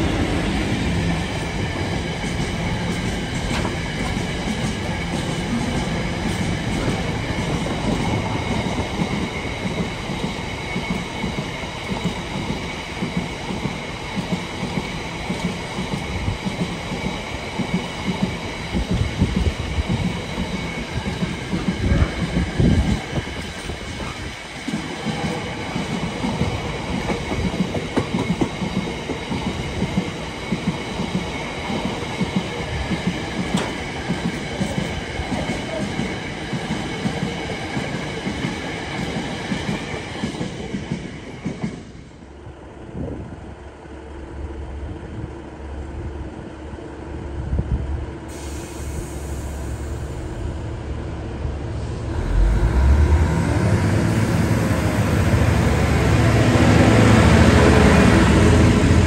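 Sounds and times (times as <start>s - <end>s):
diesel locomotive engine rumble: 0.0s - 59.0s
train wheels clicking over rail joints: 0.8s - 42.1s.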